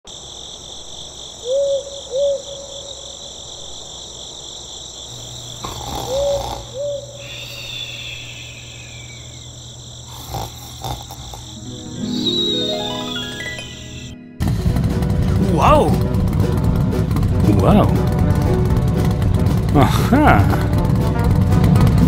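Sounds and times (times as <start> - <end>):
crickets chirping: 0.0 - 16.0
owl hooting: 1.4 - 3.3, 5.1 - 14.2
low hum: 5.1 - 10.2, 11.2 - 22.0
rising tone: 11.7 - 17.3.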